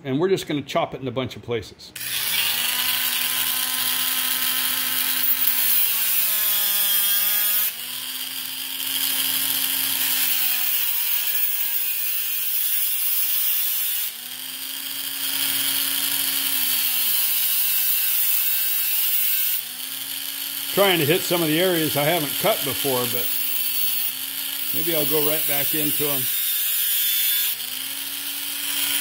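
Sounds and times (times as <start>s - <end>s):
cutoff wheel grinding steel screw: 2.0s - 29.0s
rotary tool motor whine: 2.0s - 29.0s.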